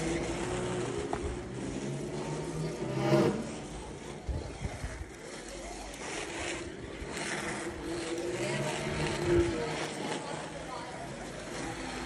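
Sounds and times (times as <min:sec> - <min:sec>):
slot car motor whining: 0:00.0 - 0:04.3.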